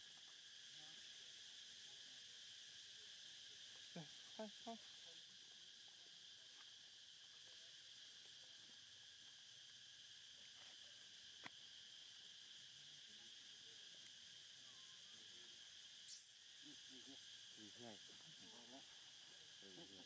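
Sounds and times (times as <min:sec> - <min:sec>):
high-pitched insect chorus: 0:00.0 - 0:20.0
short pitched calls: 0:16.1 - 0:16.4.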